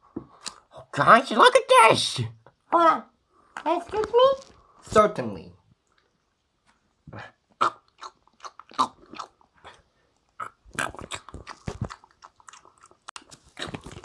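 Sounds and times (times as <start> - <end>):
crunching and chewing: 7.6 - 14.0.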